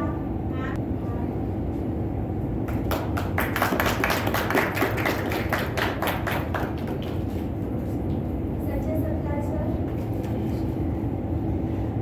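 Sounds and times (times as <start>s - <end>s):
steady low hum: 0.0s - 12.0s
small group clapping: 2.6s - 7.6s.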